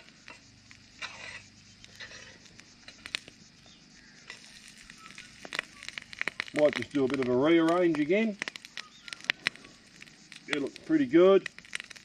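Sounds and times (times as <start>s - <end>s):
metal tongs scraping griddle: 1.0s - 3.0s.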